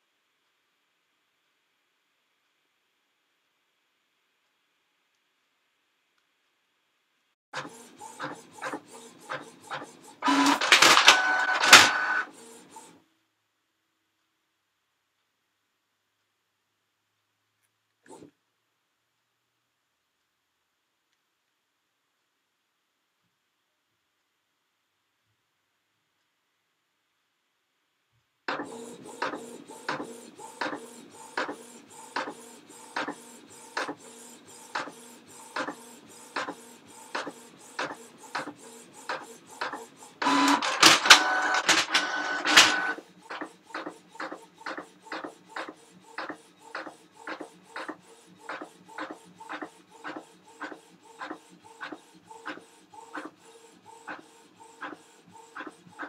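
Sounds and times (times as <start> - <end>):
printer clicking: 7.7 - 12.3, 28.5 - 34.0, 34.7 - 50.7.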